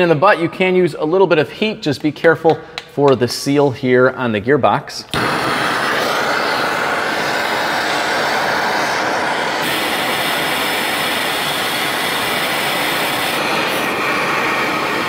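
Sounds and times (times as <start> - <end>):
hand torch hissing: 5.1 - 15.0.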